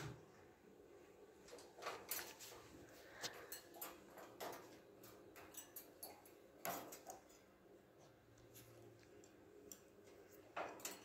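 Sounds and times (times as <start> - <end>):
parrot clicking and tapping in cage: 3.6 - 7.5.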